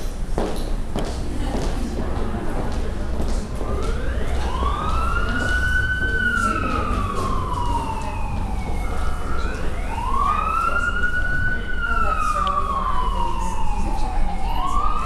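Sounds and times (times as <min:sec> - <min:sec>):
emergency siren wailing: 0:03.0 - 0:15.0.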